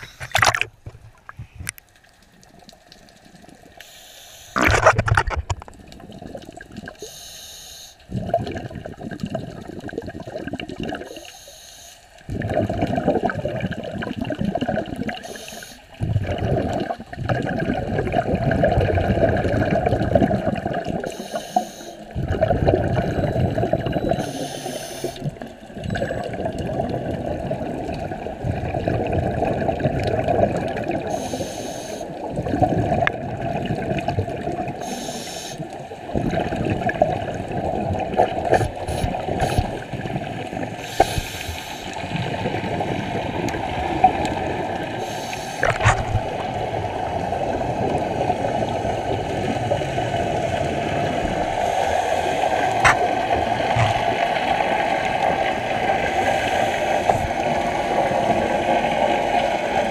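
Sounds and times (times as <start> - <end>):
low rumble of water: 0.0 - 3.9, 4.5 - 7.1, 8.0 - 11.2, 12.1 - 21.2, 22.0 - 31.4, 32.1 - 35.0, 35.6 - 59.9
diver breathing through regulator: 7.0 - 8.0, 15.2 - 15.8, 21.1 - 22.1, 31.1 - 32.1, 34.8 - 35.6, 40.8 - 42.0, 45.0 - 46.2.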